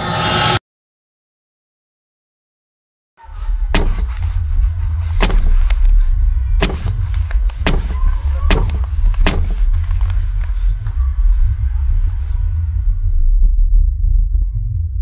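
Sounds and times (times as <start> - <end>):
deep low drone: 3.2 - 15.0
heavy blows: 3.3 - 11.6.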